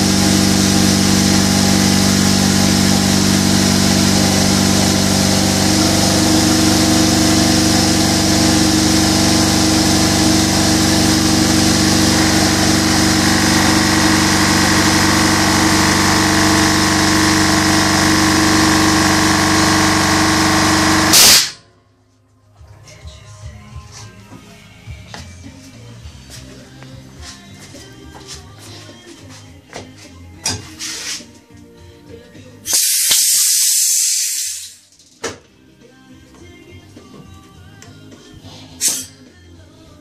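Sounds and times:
air compressor running: 0.0 - 21.6, 32.6 - 34.9
loud burst of noise: 0.0 - 21.6, 32.7 - 34.9.

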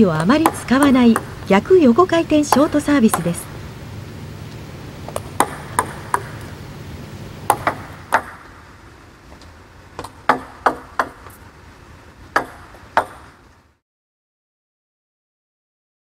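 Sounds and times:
table tennis ball knocks: 5.1 - 6.3.

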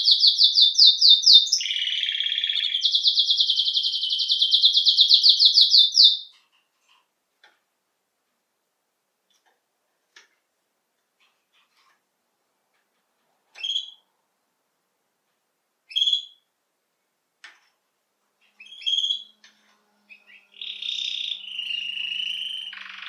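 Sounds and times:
canary chirping and singing: 0.0 - 6.4, 13.5 - 14.0, 15.9 - 16.4, 18.4 - 23.0.

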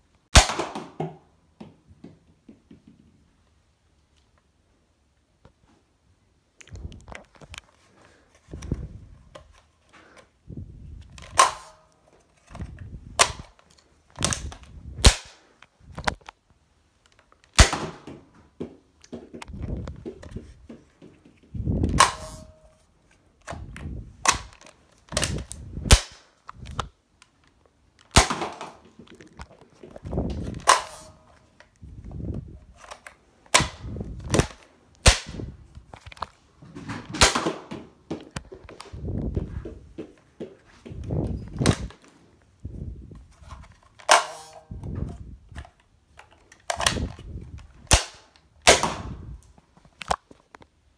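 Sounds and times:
toy dart blaster popping: 11.2 - 11.8, 21.9 - 22.6.

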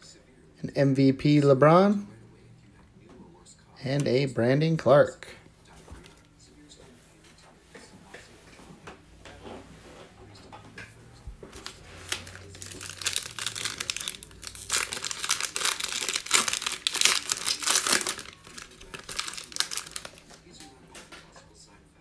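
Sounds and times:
foil wrapper crinkling: 11.5 - 20.6.

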